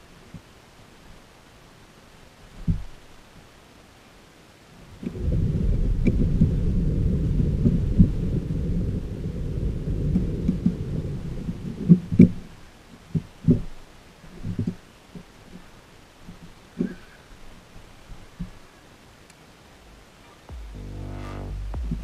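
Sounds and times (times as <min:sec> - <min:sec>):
thunder rumbling: 0:05.1 - 0:11.9, 0:19.7 - 0:22.0.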